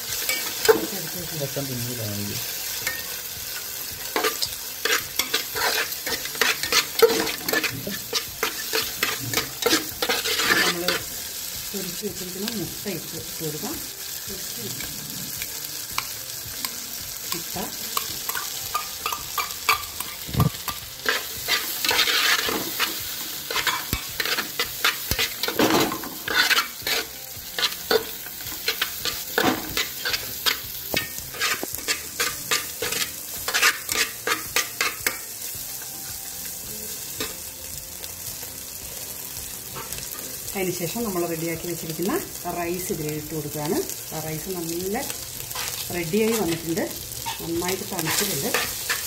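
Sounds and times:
food sizzling in a pan: 0.0 - 49.0
metal utensil scraping a pan: 0.1 - 1.2, 2.7 - 11.1, 16.0 - 35.6, 45.4 - 49.0.

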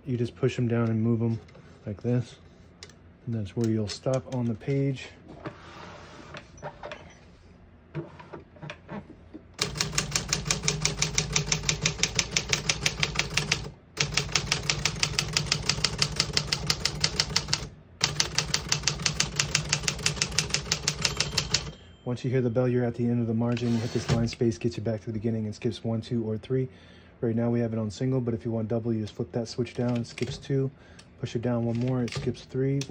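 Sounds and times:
typewriter keys clicking: 9.6 - 21.7.

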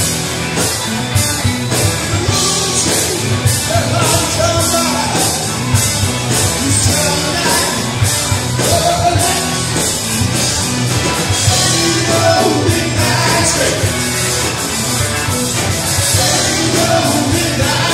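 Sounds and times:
drum kit with cymbal strokes: 0.0 - 17.9
electric guitar: 0.0 - 17.9
man singing: 2.0 - 5.6, 6.6 - 8.0, 8.6 - 9.8, 11.5 - 14.1, 16.1 - 17.9.

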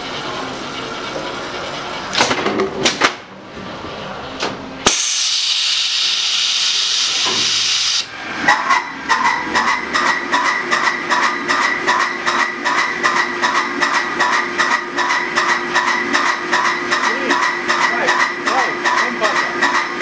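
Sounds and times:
loud machine hiss: 4.8 - 8.1
machine clacks: 8.5 - 20.0
rhythmic machine clattering: 8.5 - 20.0.

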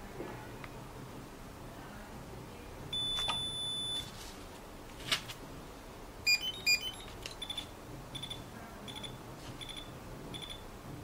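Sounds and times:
long high lock beep: 3.0 - 4.1, 6.3 - 10.6
short lock beeps: 3.0 - 4.1, 6.3 - 10.6.

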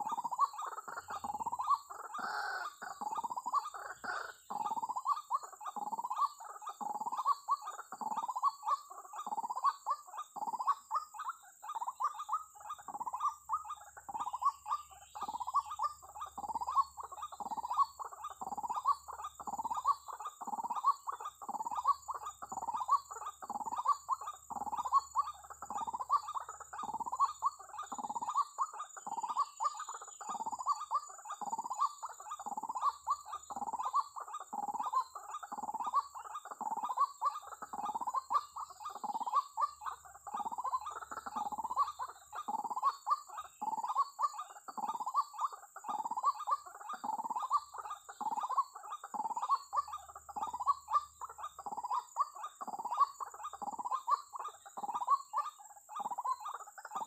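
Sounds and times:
waterbird harsh repeated calls: 2.2 - 3.2.

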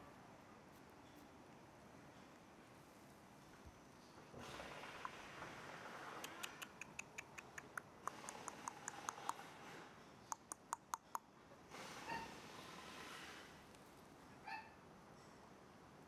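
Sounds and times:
faint hiss: 0.0 - 10.2, 11.6 - 14.4
high-pitched squeaky ticks: 6.3 - 9.4, 10.3 - 11.2.

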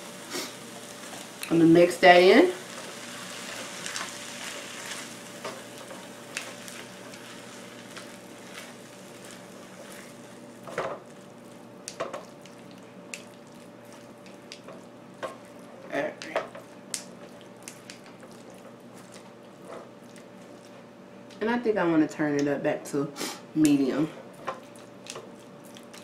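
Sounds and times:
food sizzling in a frying pan: 0.0 - 18.8.

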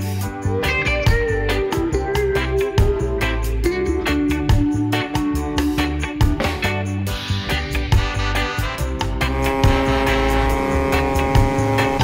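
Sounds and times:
music with beat bass and guitar: 0.0 - 12.0.

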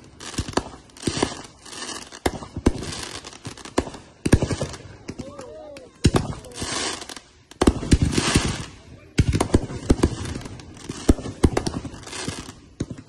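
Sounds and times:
fireworks bangs: 0.0 - 13.0
fireworks crackling and hissing: 0.0 - 13.0.

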